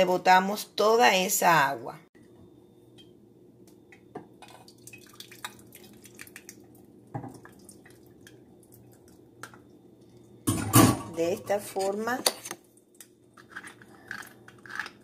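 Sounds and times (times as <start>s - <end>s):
water dripping into a metal sink: 4.4s - 9.7s.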